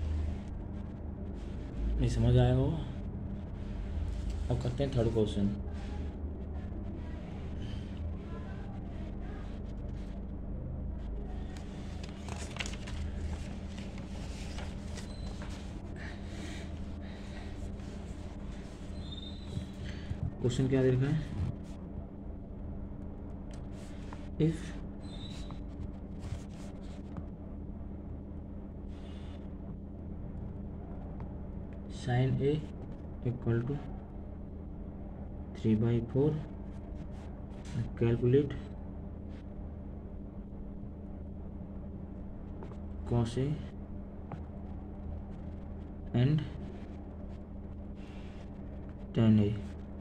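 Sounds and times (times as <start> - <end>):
steady low hum: 0.0 - 50.0
paper rustling and crinkling: 11.4 - 15.8.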